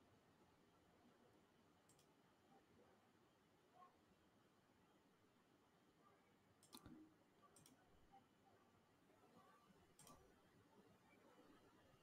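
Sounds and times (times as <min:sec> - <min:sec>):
computer mouse clicks: 0:01.8 - 0:02.2, 0:06.6 - 0:07.8, 0:10.0 - 0:10.3.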